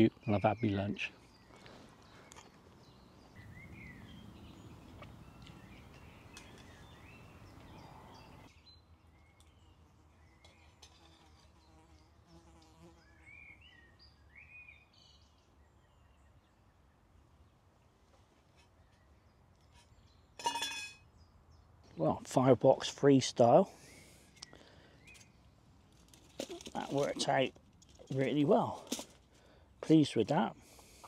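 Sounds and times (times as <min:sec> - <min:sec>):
faint birdsong: 0:00.0 - 0:31.0
insect buzzing: 0:10.8 - 0:13.5.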